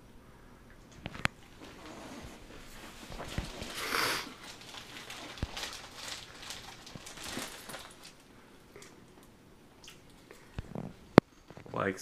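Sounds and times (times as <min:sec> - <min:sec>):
short breathy hiss: 0:03.8 - 0:04.3.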